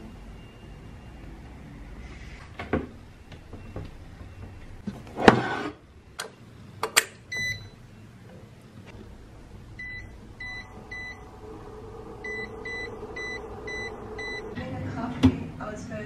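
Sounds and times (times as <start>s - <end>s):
induction cooker beeps: 0.0s - 2.0s, 7.3s - 8.1s, 9.8s - 11.4s, 12.2s - 14.6s
cooker humming: 7.3s - 16.0s.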